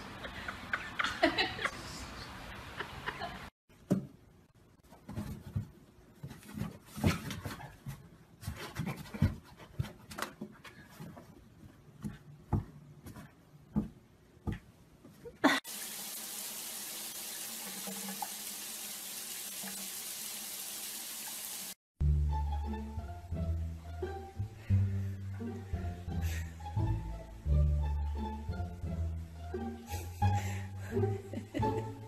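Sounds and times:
water running from tap: 15.6s - 21.8s.

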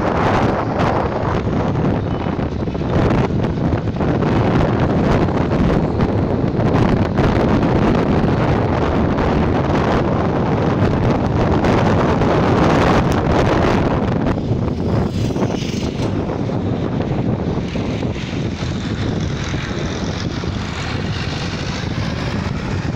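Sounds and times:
tractor engines running: 0.0s - 22.9s
wind buffeting microphone: 0.0s - 22.9s.

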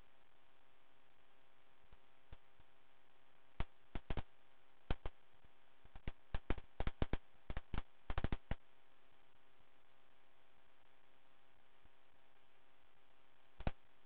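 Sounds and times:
faint steady hum: 0.0s - 14.0s
sharp clicks: 3.6s - 4.3s, 5.9s - 8.6s.

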